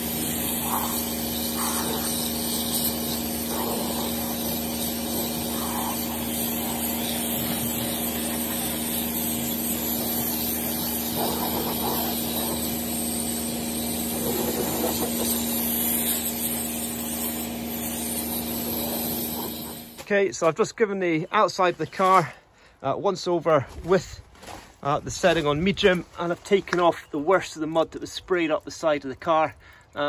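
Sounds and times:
water jet spraying hiss: 0.0 - 20.0
pressure washer pump humming: 0.0 - 20.1.

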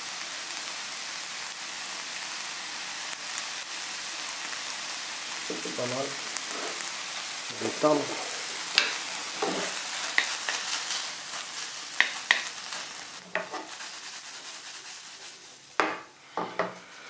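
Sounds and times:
meat sizzling in a frying pan: 0.0 - 17.0
wooden spatula scraping a pan: 5.5 - 7.0, 7.6 - 11.1, 13.2 - 16.8
spatula knocking on pan: 15.8 - 16.7.

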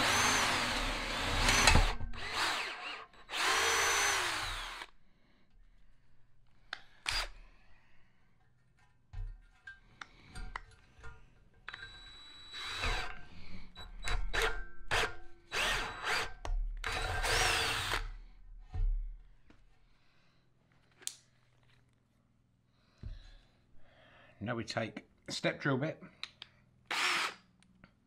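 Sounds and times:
drill clicks: 0.0 - 4.9, 6.7 - 7.4, 11.7 - 13.2, 13.8 - 18.1, 26.2 - 27.5
drill motor whining: 0.0 - 4.9, 7.0 - 7.4, 11.7 - 13.2, 13.8 - 18.1, 26.9 - 27.4.

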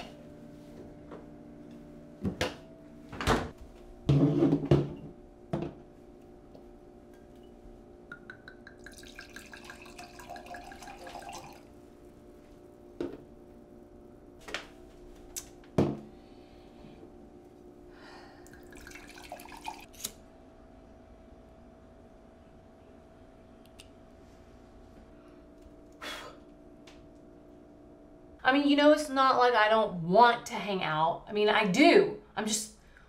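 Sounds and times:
wine pouring into glass: 8.5 - 11.7, 18.4 - 19.9.

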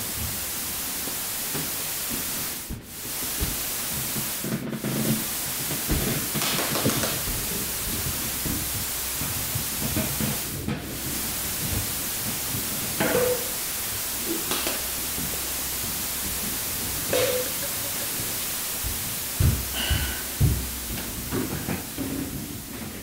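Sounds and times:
television static hiss: 0.0 - 23.0.

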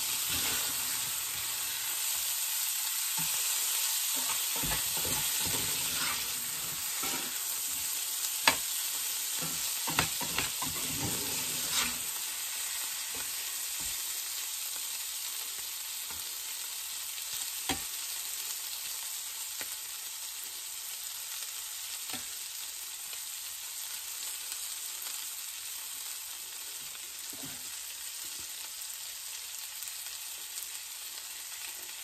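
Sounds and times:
metal spatula stirring food: 0.0 - 2.2, 3.0 - 13.9
food sizzling in a skillet: 0.0 - 32.0.

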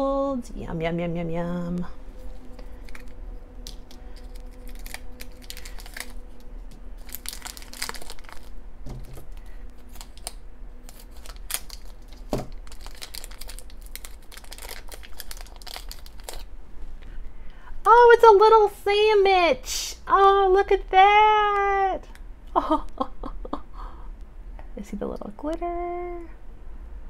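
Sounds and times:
foil wrapper crinkling: 2.2 - 16.5.

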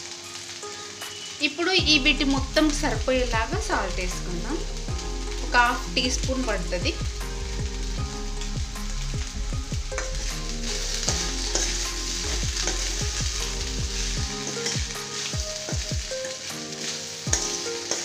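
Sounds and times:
food sizzling in a pan: 0.0 - 18.0
spoon scraping a pan: 11.0 - 13.0, 14.0 - 18.0.

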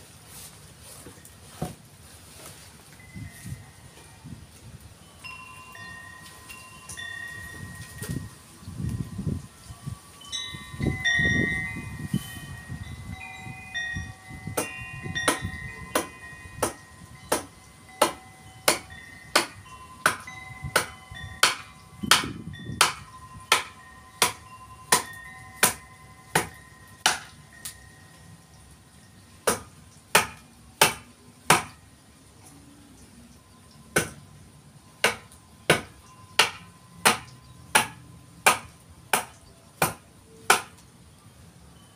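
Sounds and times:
wind chimes ringing: 2.9 - 30.1, 31.2 - 40.4, 41.0 - 41.9
blade chopping wood: 14.6 - 27.3, 29.4 - 31.8, 35.0 - 40.8.

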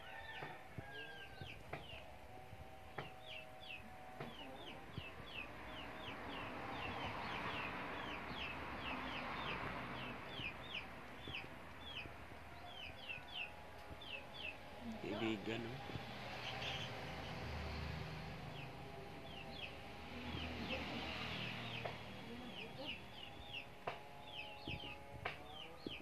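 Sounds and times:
chickens peeping: 3.0 - 17.1, 19.3 - 26.0.

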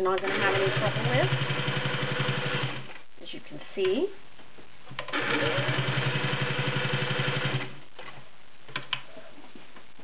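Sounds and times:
sewing machine stitching: 0.0 - 2.9, 5.0 - 7.8.

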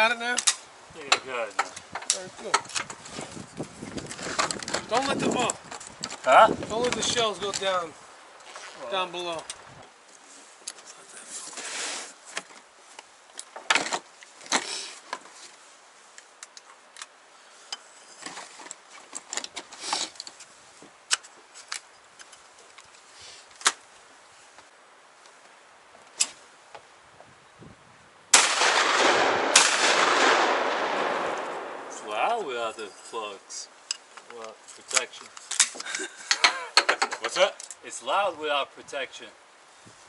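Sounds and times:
gunshots: 28.4 - 32.0.

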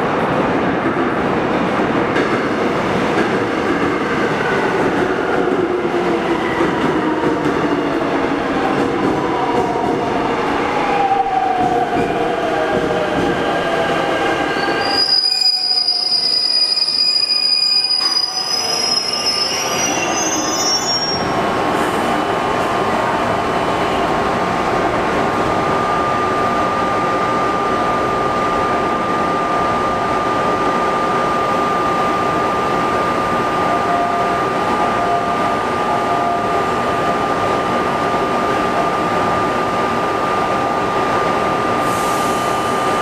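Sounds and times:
high-pitched brake squeal: 14.5 - 21.3.

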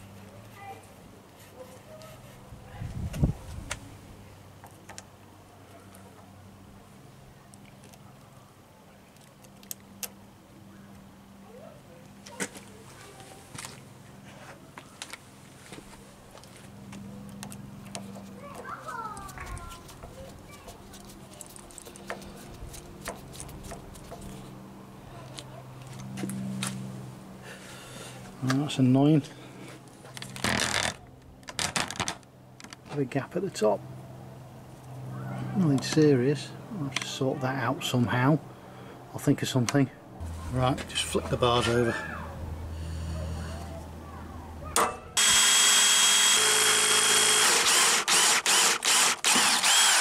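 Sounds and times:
electric drill whining: 45.2 - 50.0
screwdriver clicking on screw: 45.2 - 50.0.

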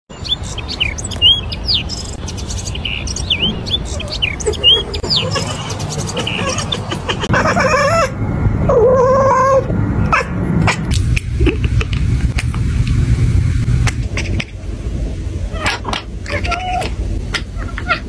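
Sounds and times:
small birds chirping: 0.1 - 7.2
wavering bird calls: 0.2 - 8.2.

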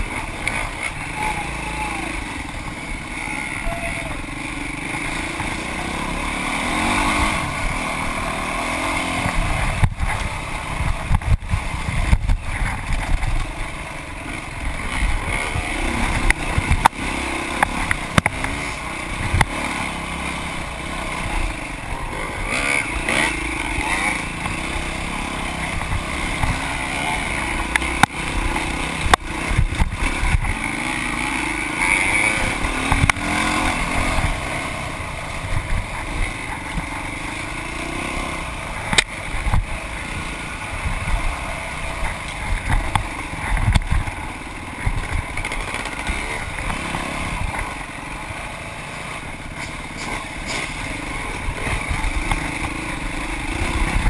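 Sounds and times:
dirt bike engine revving: 0.0 - 54.0
wind buffeting microphone: 9.3 - 13.8.

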